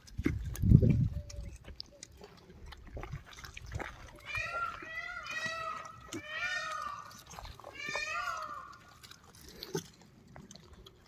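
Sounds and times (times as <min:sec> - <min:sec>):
langurs squealing: 0:04.2 - 0:09.0.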